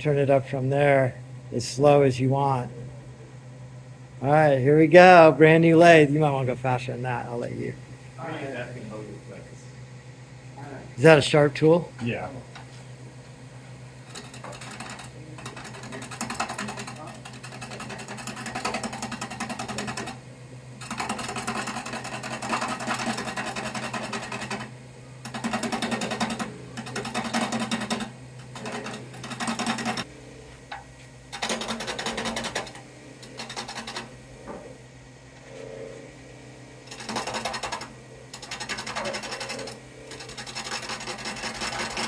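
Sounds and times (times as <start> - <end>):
lathe motor humming: 0.0 - 42.0
gouge scraping spinning wood: 13.9 - 34.8, 35.4 - 42.0.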